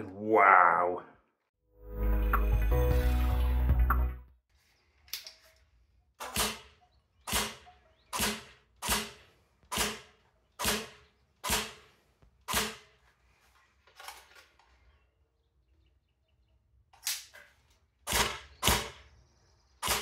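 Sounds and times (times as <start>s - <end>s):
airsoft rifle single shots: 6.2s - 11.9s, 12.5s - 12.9s.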